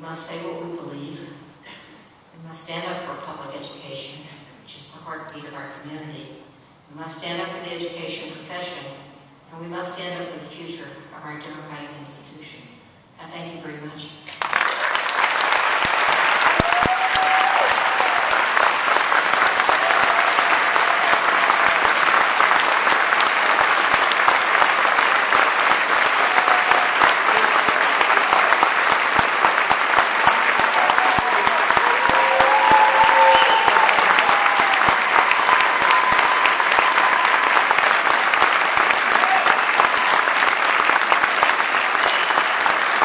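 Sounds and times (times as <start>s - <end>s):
large audience applauding: 14.4s - 43.0s
people cheering: 14.6s - 43.0s.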